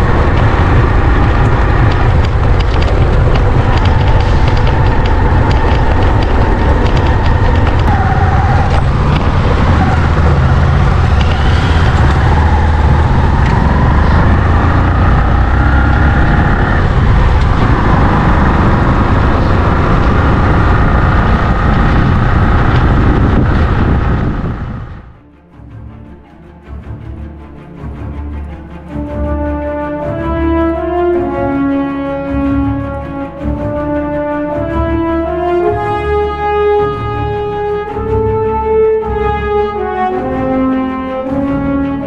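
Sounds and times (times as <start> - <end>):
motorcycle engine running: 0.0 - 25.2
wind rumble on microphone: 0.0 - 25.2.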